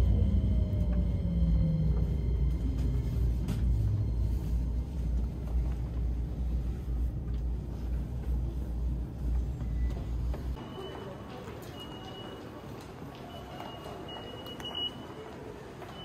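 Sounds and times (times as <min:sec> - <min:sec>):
traction motor whine falling: 0:00.0 - 0:04.8
train running rumble: 0:00.0 - 0:10.6.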